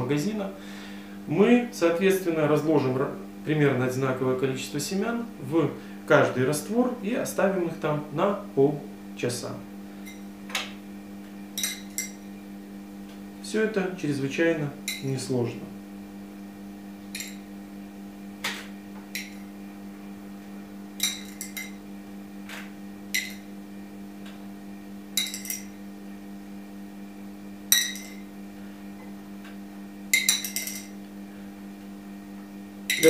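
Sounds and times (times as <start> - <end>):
steady low hum: 0.0 - 33.0
glass jars clinking: 11.6 - 12.2, 14.9 - 15.1, 17.2 - 17.4, 21.0 - 21.8, 23.1 - 23.5, 25.2 - 25.7, 27.7 - 28.3, 30.1 - 30.9.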